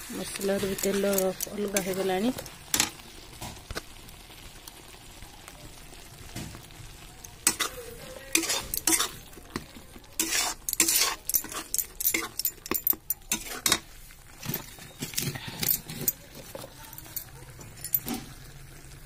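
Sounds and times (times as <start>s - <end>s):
paste sizzling in oil: 0.0s - 19.0s
metal spatula scraping a pan: 0.1s - 3.0s, 7.4s - 18.4s.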